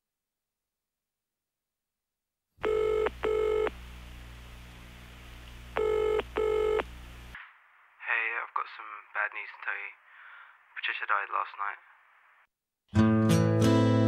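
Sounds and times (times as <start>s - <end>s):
telephone ringing: 2.6s - 3.8s, 5.8s - 6.9s
steady low hum: 2.6s - 8.0s.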